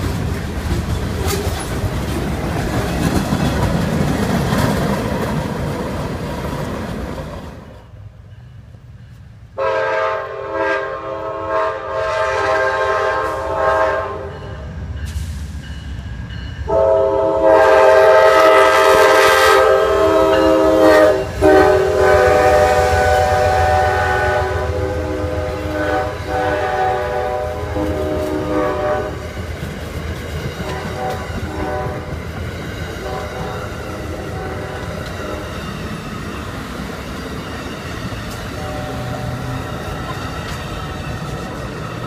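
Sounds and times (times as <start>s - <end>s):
train rumble and wheel clatter: 0.0s - 42.0s
locomotive air horn blasts: 9.6s - 14.4s, 16.7s - 29.3s, 30.6s - 32.1s, 33.0s - 35.5s, 38.5s - 39.7s.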